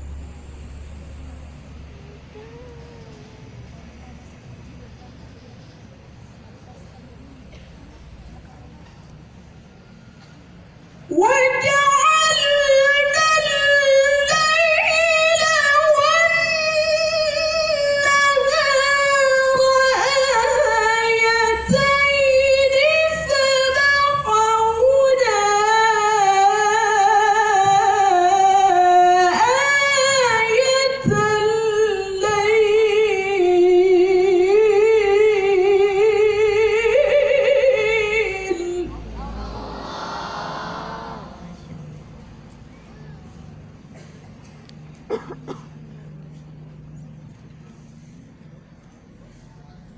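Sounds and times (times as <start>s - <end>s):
woman reciting melodically over loudspeaker: 11.1s - 41.7s.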